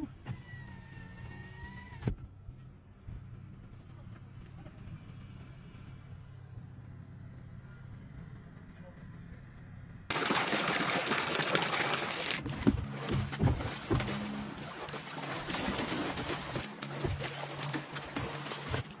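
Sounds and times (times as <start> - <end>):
water splashing in a tub: 10.1 - 19.0.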